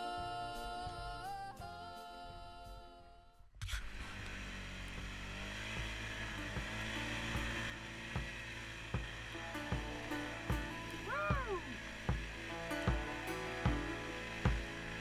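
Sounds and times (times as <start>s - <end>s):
atv engine running: 3.6s - 15.0s
low thumps: 8.2s - 14.8s.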